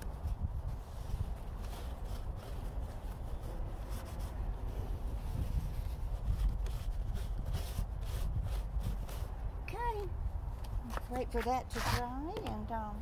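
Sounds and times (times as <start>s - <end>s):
paper towel wiping car mirror: 0.0s - 9.4s.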